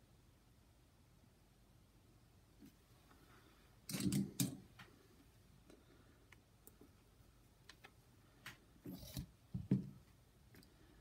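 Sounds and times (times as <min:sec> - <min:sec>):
knocks and rustles: 0:09.1 - 0:10.1.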